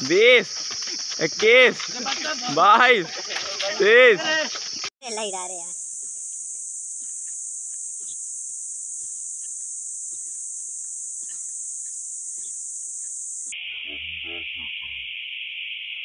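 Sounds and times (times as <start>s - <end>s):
high-pitched hiss: 0.0s - 16.0s.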